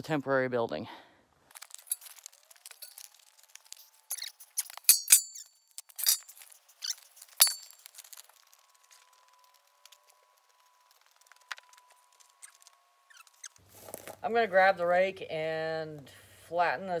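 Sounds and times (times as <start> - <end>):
ringing metallic clinks: 4.1 - 6.3, 7.4 - 8.2.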